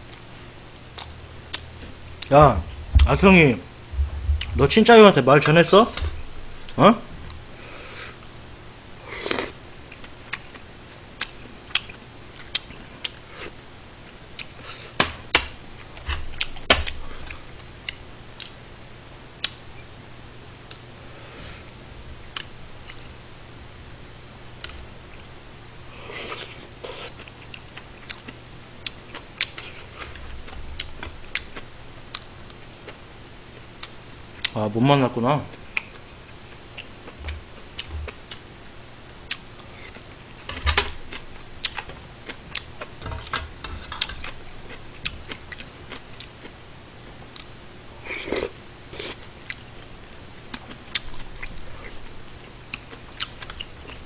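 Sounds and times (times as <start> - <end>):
chewing: 26.1 - 33.0, 35.7 - 38.4, 41.1 - 46.5, 47.2 - 47.5, 48.1 - 52.1, 52.7 - 54.0.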